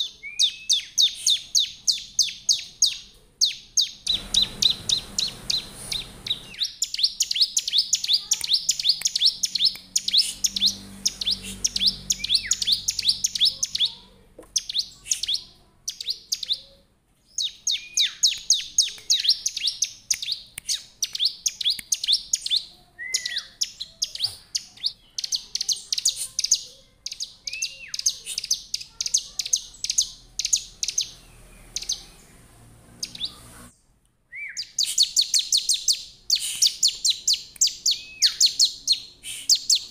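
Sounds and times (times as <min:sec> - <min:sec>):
bird chirping rapidly: 0:00.0 - 0:16.7, 0:17.3 - 0:33.7, 0:34.4 - 0:39.9
lower slurred bird notes: 0:04.0 - 0:14.0.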